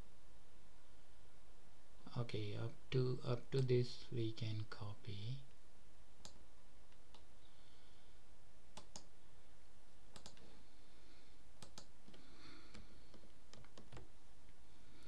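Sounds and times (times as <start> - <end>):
mouse clicking: 8.8 - 9.1, 10.1 - 10.5, 11.6 - 14.1.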